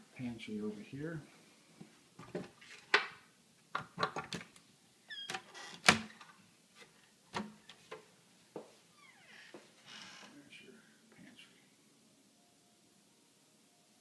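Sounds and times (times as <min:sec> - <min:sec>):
cabinet door squeak: 0:05.1 - 0:06.2.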